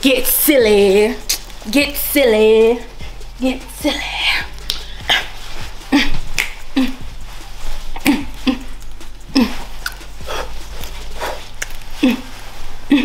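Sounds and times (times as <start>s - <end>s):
person making vocal sounds: 4.2s - 7.1s, 8.0s - 13.0s.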